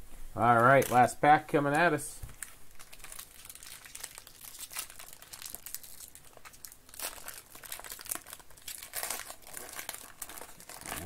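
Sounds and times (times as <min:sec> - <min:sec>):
foil wrapper crinkling: 0:00.6 - 0:01.1, 0:01.7 - 0:11.0.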